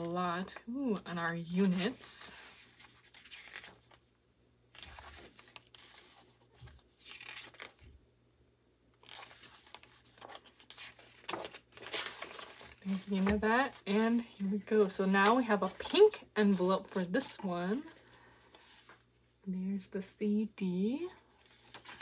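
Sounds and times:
book pages turning: 0:01.0 - 0:04.0, 0:04.7 - 0:07.9, 0:09.0 - 0:18.0, 0:21.4 - 0:22.0.

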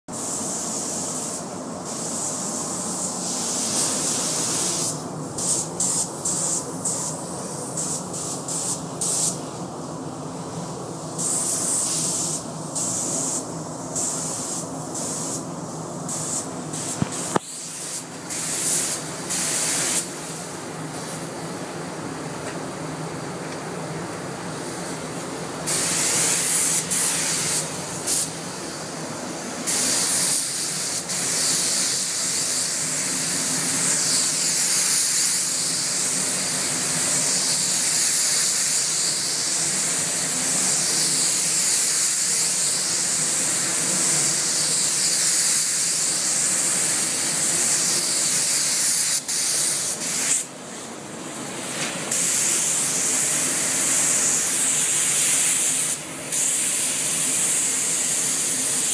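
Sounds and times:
paint spray gun hissing: 0:00.2 - 0:09.5, 0:11.1 - 0:21.2, 0:25.6 - 0:50.5, 0:51.6 - 0:58.9.

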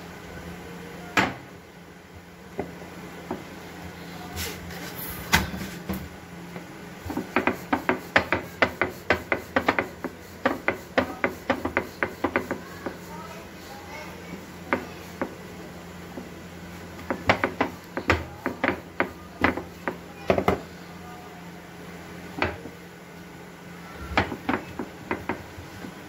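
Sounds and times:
rolling pin clacking on board: 0:07.1 - 0:12.6, 0:14.7 - 0:15.4, 0:17.0 - 0:20.6, 0:24.1 - 0:26.0.

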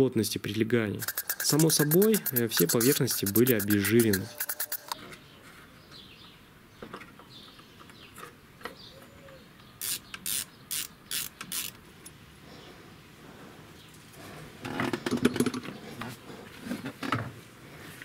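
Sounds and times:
ratchet wrench clicking: 0:01.0 - 0:05.0, 0:09.8 - 0:11.8.

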